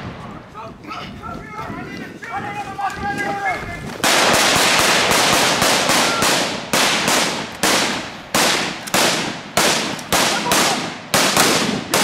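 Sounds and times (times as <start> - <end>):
rifle shots echoing: 4.0 - 12.0.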